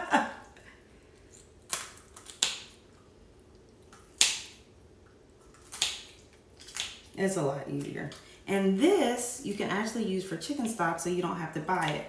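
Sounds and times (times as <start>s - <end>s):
kitchen shears snipping bones: 1.7s - 2.8s, 4.0s - 4.6s, 5.5s - 8.2s.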